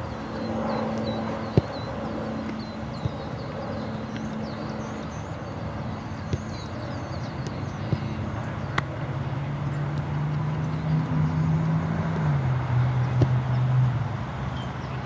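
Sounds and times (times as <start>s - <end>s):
soccer ball being kicked: 0.8s - 3.4s, 6.1s - 8.9s, 12.0s - 13.7s.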